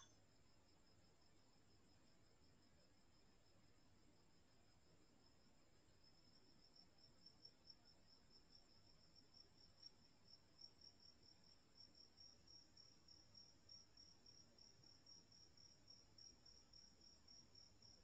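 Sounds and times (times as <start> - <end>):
crickets chirping: 5.2 - 18.0.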